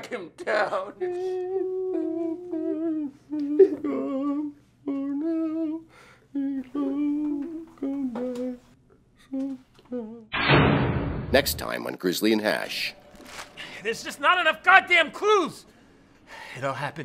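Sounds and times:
person humming: 0.9 - 10.3.

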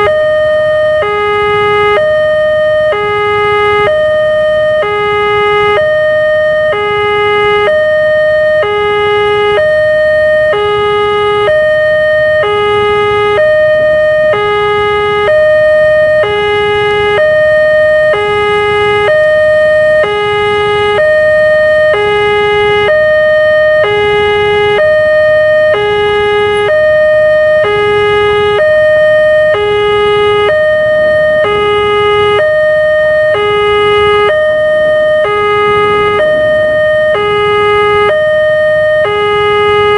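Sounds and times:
two-tone crossing alarm: 0.0 - 39.9
low rumble: 34.3 - 39.0.

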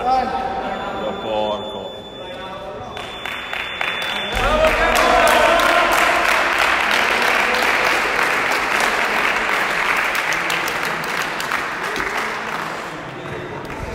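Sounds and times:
onlookers applauding: 3.0 - 13.9.

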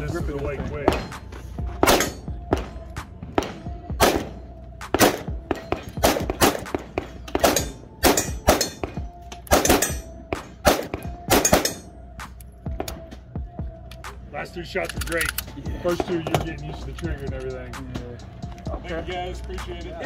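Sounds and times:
pistol shots: 0.8 - 12.0
other gunshots: 1.8 - 11.9.

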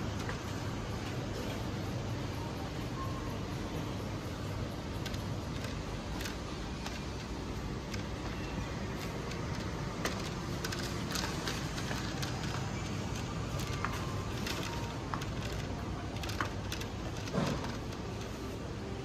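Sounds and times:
steady hum: 0.0 - 19.0
small clicks and knocks: 9.0 - 18.6.

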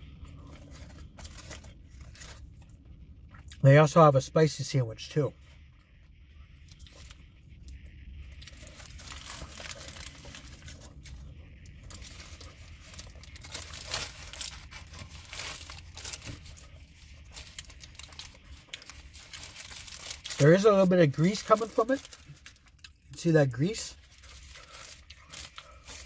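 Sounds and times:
low steady rumble: 0.0 - 26.0
paper wrapper rustling: 0.4 - 2.6, 8.4 - 26.0.

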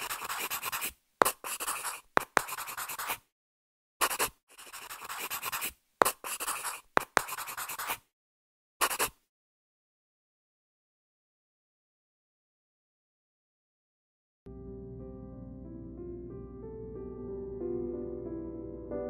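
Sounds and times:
pen scratching on paper: 0.0 - 3.2, 4.0 - 8.1, 8.8 - 9.2.

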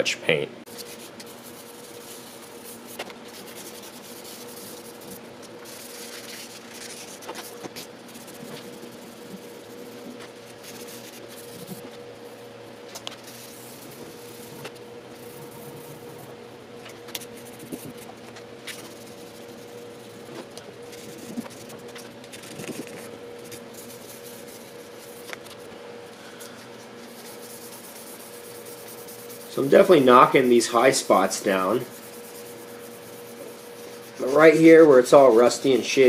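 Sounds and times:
steady hum: 0.0 - 36.0
sandpaper scratching on metal: 27.0 - 36.0.

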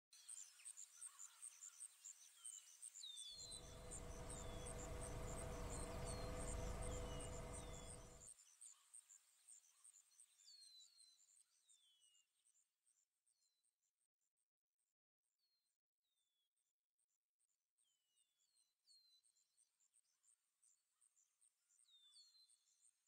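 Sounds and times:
crickets chirping: 3.5 - 8.2
low rumble: 3.5 - 8.2.

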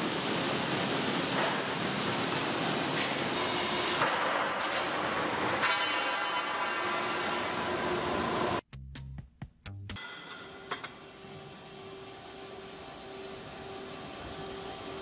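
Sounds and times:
industrial machinery noise: 0.0 - 8.6.

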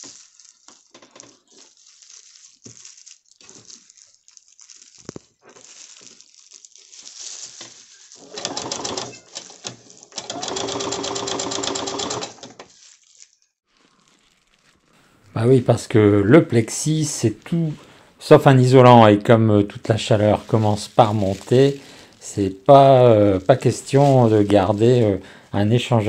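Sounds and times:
sewing machine stitching: 8.2 - 12.6.

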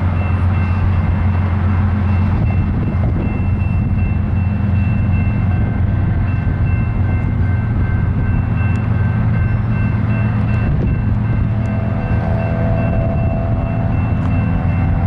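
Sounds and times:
diesel locomotive engines droning: 0.0 - 15.0.

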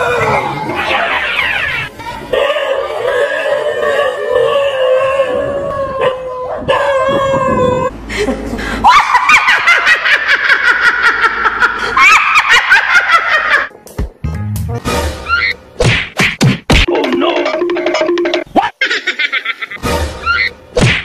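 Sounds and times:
woman laughing loudly: 8.1 - 13.7, 18.6 - 19.8.

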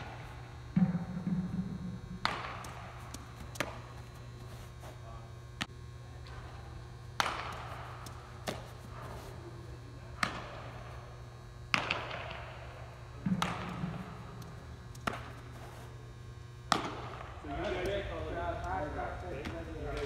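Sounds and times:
electrical hum: 0.0 - 20.0
baseball smacking into glove: 7.2 - 9.2, 13.2 - 15.7.

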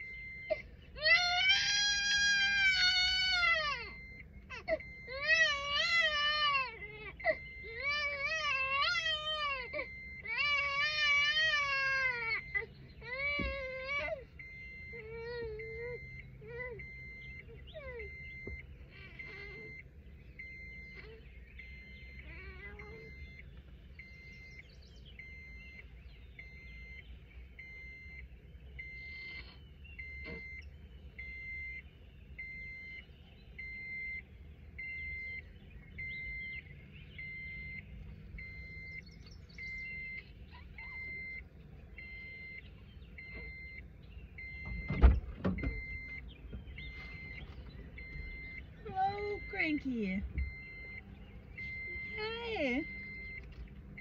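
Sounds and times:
car warning chime beeping: 0.0 - 54.0
car door thumping shut: 44.6 - 45.8.

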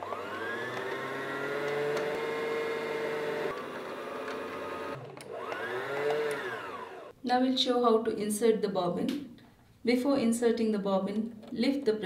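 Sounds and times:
sewing machine motor whine: 0.0 - 7.1.

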